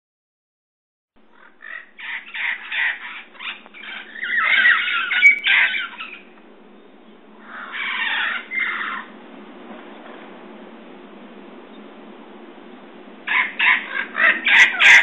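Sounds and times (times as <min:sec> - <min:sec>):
parrots squawking loudly: 0:01.3 - 0:06.3, 0:07.4 - 0:09.1, 0:13.3 - 0:15.0.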